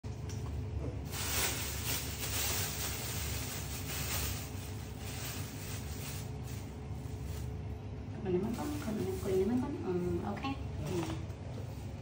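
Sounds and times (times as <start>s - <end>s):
steady low hum: 0.0s - 12.0s
plastic bag crinkling: 1.0s - 7.7s.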